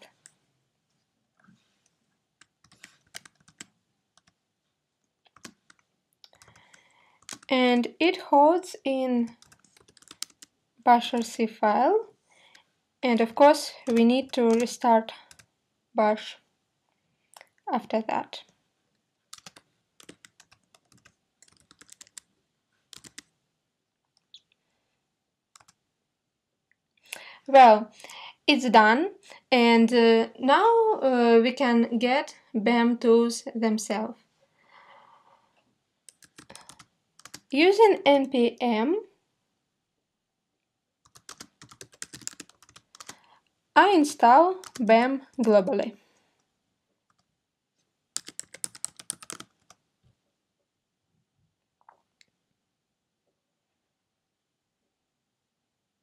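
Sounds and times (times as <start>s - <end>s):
computer keyboard keystrokes: 2.4s - 4.4s, 5.3s - 7.5s, 9.3s - 10.5s, 13.8s - 15.5s, 19.3s - 22.3s, 22.9s - 23.3s, 25.6s - 25.8s, 36.1s - 37.5s, 41.1s - 43.2s, 48.2s - 49.8s.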